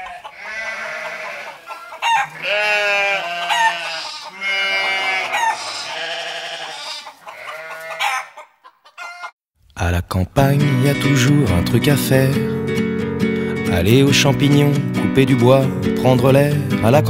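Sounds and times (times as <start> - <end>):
bleating: 0.0 - 8.4
rooster crowing: 0.0 - 9.4.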